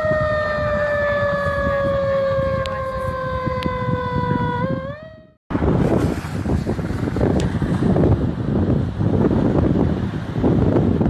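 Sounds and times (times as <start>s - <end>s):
siren wailing: 0.0s - 5.4s.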